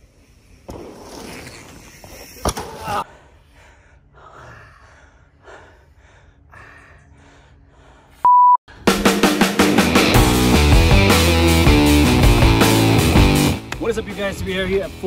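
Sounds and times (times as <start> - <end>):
pained breaths and groans: 2.2 - 8.2
censor bleep: 8.2 - 8.6
heavy rock guitar music: 8.9 - 13.8.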